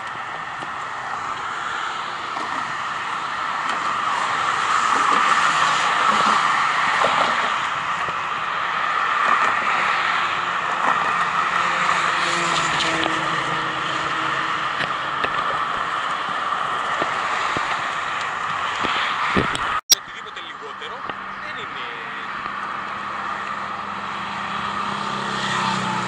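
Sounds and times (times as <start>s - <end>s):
road traffic passing: 0.0s - 26.0s.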